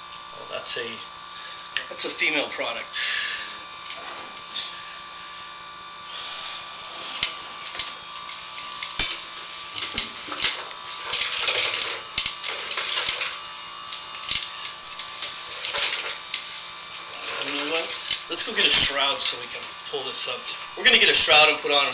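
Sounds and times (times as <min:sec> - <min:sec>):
electrical hum: 0:00.0 - 0:21.9
cable scraping in a pipe: 0:03.8 - 0:05.0, 0:06.1 - 0:20.8.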